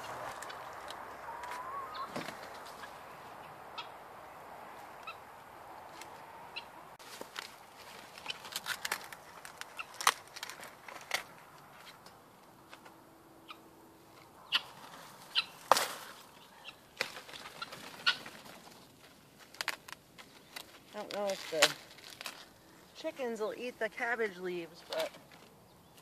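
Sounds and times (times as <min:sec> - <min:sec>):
chicken calling: 0:00.0 - 0:07.0, 0:14.4 - 0:18.5
cabbage leaves snapping: 0:07.1 - 0:11.6, 0:15.6 - 0:16.2, 0:19.4 - 0:22.5.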